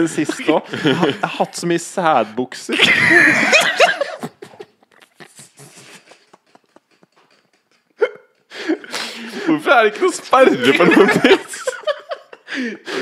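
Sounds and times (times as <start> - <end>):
men laughing breathlessly: 0.0 - 1.4, 2.7 - 13.0.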